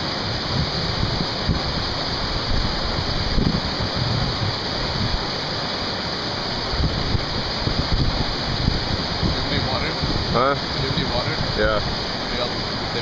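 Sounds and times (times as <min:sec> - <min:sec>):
river running over rocks: 0:00.0 - 0:13.0.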